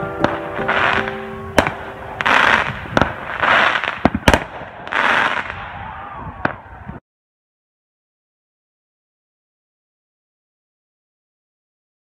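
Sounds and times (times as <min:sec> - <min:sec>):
firework crackling: 0:00.0 - 0:05.9
firework shells bursting: 0:00.2 - 0:05.6.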